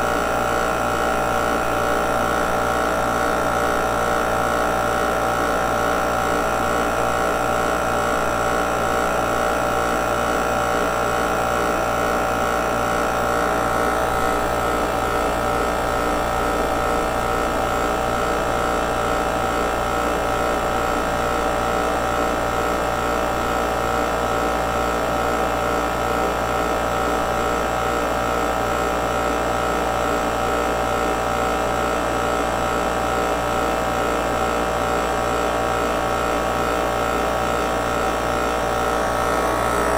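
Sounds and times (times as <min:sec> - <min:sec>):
recovery machine humming: 0:38.1 - 0:39.9.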